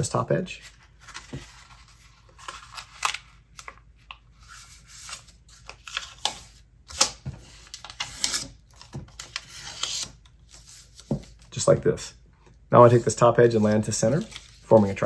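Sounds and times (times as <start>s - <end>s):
paper being folded: 12.9s - 15.0s.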